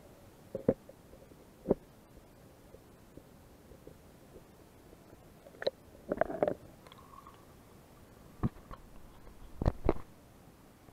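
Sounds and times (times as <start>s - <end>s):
underwater gurgles and knocks: 0.5s - 1.9s, 5.4s - 7.3s.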